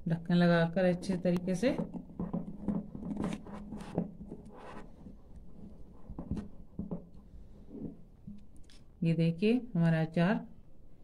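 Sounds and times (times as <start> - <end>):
plastic lid scraping on glass jar: 1.0 - 5.2.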